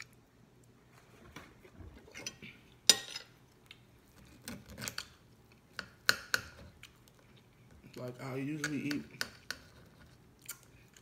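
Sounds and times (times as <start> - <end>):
cutlery clinking on a plate: 2.2 - 3.3.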